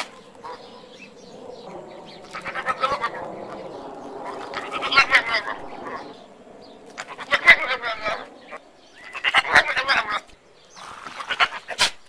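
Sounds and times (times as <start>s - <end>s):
goat bleating: 7.0s - 8.2s.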